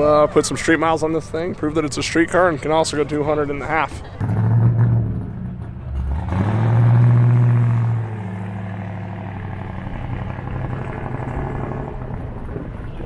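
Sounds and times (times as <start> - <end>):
car engine accelerating: 4.2 - 13.0.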